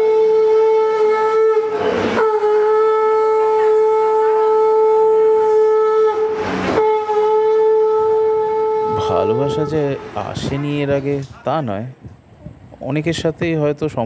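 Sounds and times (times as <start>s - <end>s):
conch shell blown: 0.0s - 10.1s.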